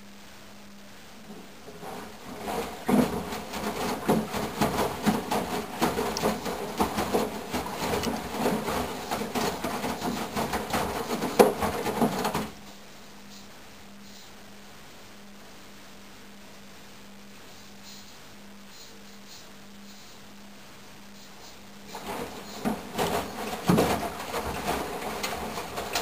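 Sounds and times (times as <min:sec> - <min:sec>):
faint steady hum: 0:00.0 - 0:26.0
washing machine drum sloshing: 0:01.2 - 0:12.6, 0:21.9 - 0:26.0.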